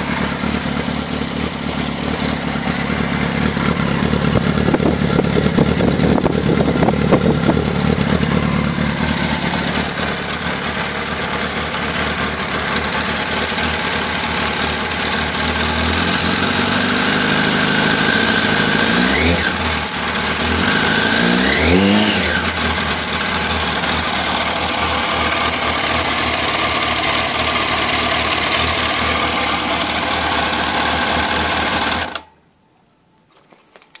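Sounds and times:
motorcycle engine idling and revving: 0.0 - 32.3.

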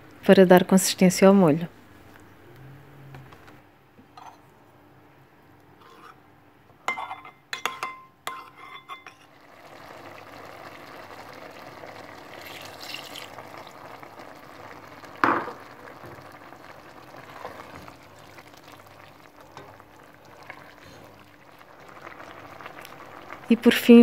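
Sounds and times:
spoon clinking against ceramic bowl: 6.9 - 9.2
curry bubbling in pot: 9.2 - 24.0.

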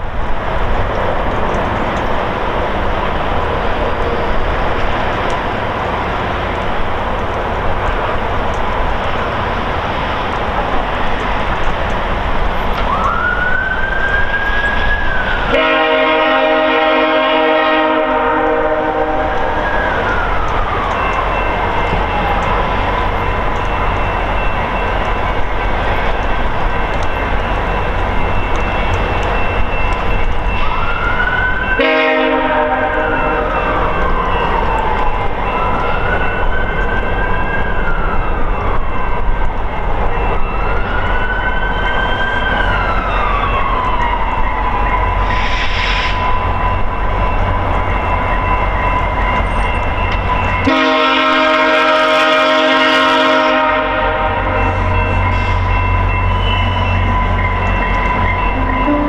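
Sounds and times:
locomotive approaching: 0.0 - 59.0
train horn chord: 15.5 - 19.6, 31.8 - 34.0, 50.6 - 55.7, 58.6 - 59.0.

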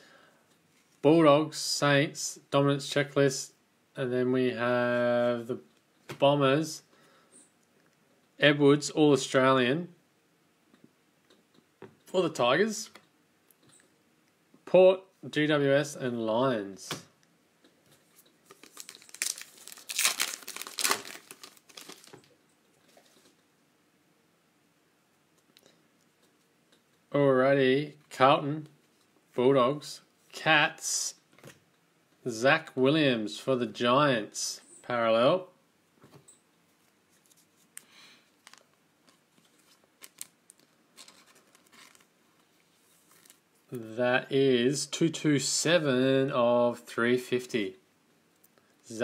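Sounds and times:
plastic wrapper crinkling and tearing: 18.4 - 22.4, 38.4 - 42.1, 43.0 - 43.4.

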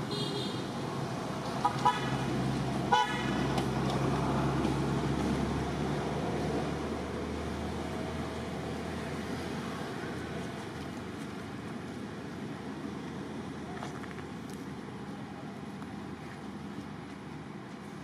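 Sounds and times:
vehicle horn toots: 2.9 - 3.4.

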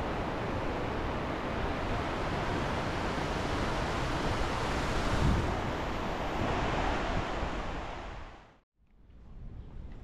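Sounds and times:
rushing water roar: 0.0 - 8.5
wind gusting on microphone: 0.0 - 8.5.

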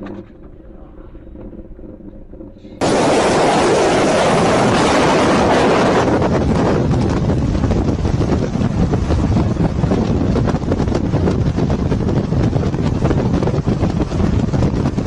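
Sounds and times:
rumble of vehicles driving: 0.0 - 15.0
wind buffeting microphone: 2.8 - 15.0.

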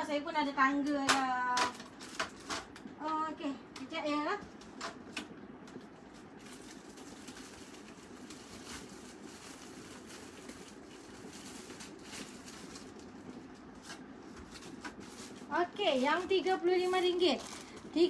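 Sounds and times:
low room hum: 0.0 - 18.0
packaged clothing rustling: 5.8 - 18.0.

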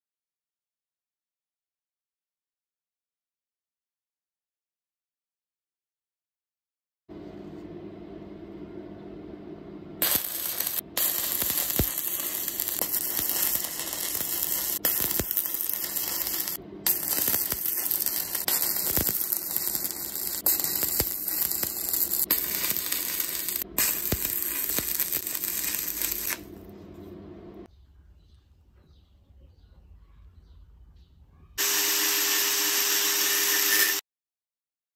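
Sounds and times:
welding arc crackling and hissing: 10.0 - 26.7, 31.6 - 34.0.

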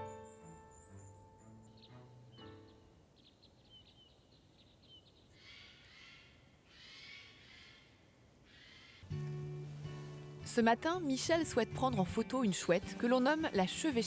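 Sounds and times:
high bird chirps: 0.0 - 5.7.

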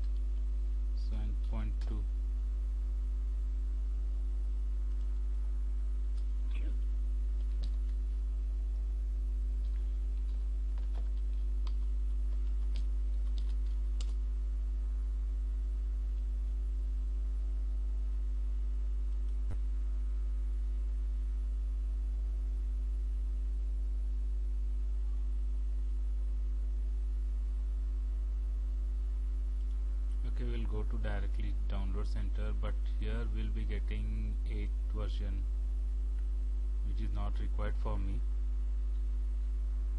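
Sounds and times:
steady low hum: 0.0 - 39.9
keyboard typing: 9.6 - 14.2.

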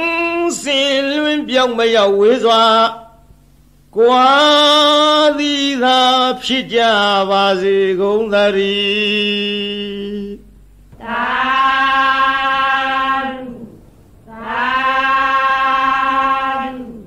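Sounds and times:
man chanting: 0.0 - 3.2, 3.9 - 10.5.

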